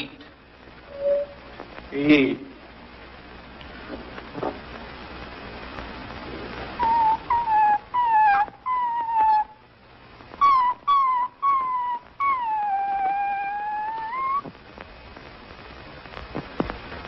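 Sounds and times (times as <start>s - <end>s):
dog whimpering: 6.8s - 9.6s, 10.4s - 14.5s.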